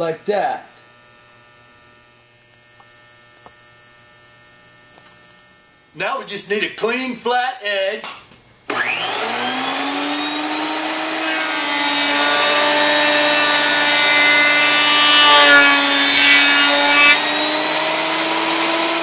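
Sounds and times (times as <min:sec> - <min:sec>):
planer cutting wood: 0:08.7 - 0:19.0
thickness planer motor whine: 0:08.7 - 0:19.0.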